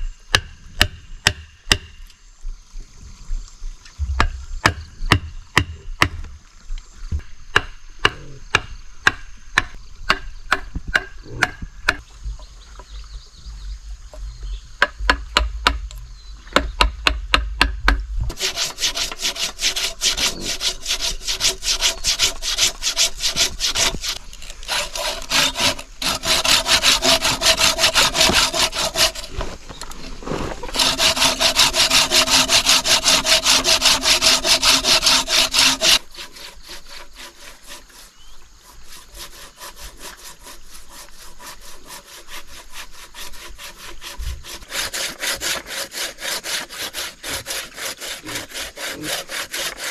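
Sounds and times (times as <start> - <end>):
hatchet chipping into wood: 0.3 - 2.0, 7.5 - 12.0
hand saw cutting log: 18.3 - 49.9.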